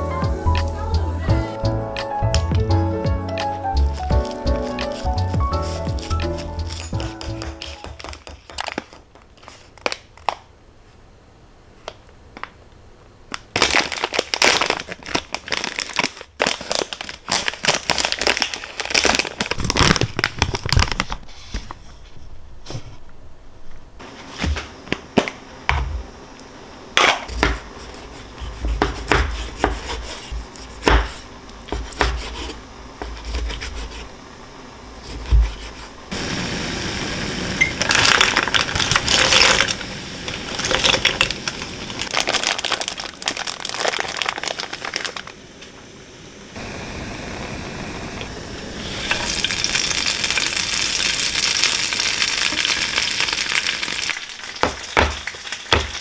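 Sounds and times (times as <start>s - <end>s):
steady hiss: 0.0s - 13.6s, 21.0s - 56.0s
utensils knocking and clicking: 6.9s - 8.7s
food sizzling in a pan: 36.1s - 43.0s, 46.6s - 56.0s.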